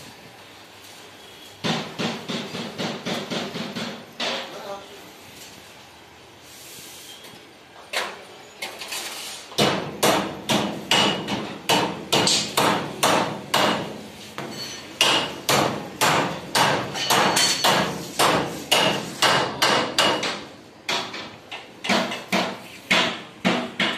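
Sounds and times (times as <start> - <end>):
hammer striking sheet steel: 9.6 - 23.9.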